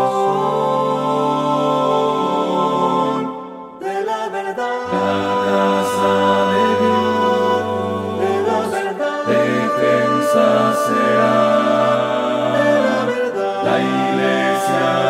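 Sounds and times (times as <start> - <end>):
choir singing a hymn: 0.0 - 15.0.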